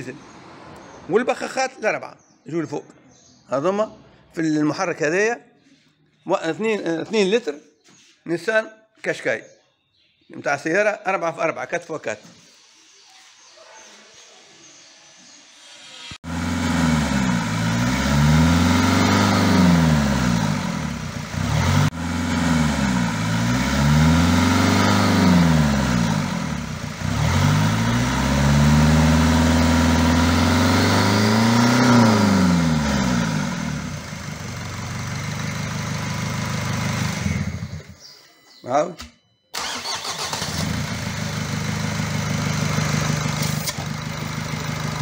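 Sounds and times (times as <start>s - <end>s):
diesel engine running: 16.2s - 38.0s, 39.6s - 45.0s.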